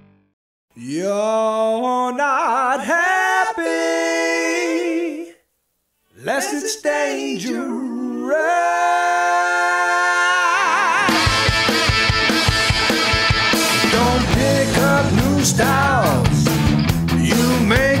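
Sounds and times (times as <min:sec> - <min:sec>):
a cappella voices in harmony: 0:00.8 - 0:05.5, 0:06.1 - 0:11.5, 0:13.8 - 0:16.6, 0:17.2 - 0:18.0.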